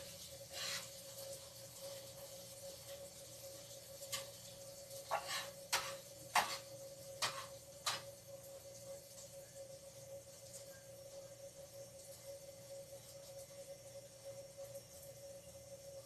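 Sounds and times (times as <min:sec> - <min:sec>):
faint steady hum: 0:00.0 - 0:16.0
utensil scraping a pan: 0:00.5 - 0:01.0, 0:05.1 - 0:08.1.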